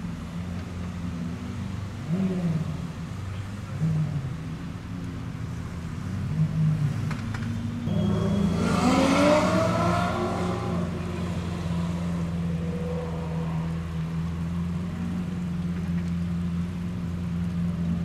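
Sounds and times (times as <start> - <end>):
sports car engines rumbling: 0.0 - 18.0
engine revving as car accelerates: 0.8 - 4.4, 6.0 - 16.1.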